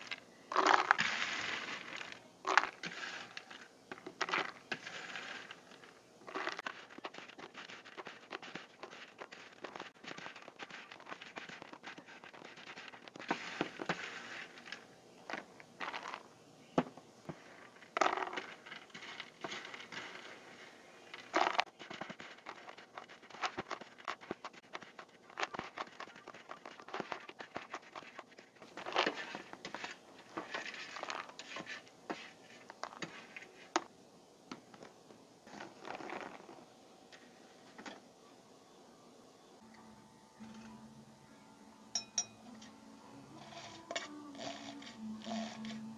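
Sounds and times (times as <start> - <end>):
croutons tumbling into container: 0.0 - 16.3, 17.3 - 33.9, 35.5 - 36.7
spatula scraping metal tray: 0.7 - 14.8, 17.3 - 33.7, 43.4 - 45.9.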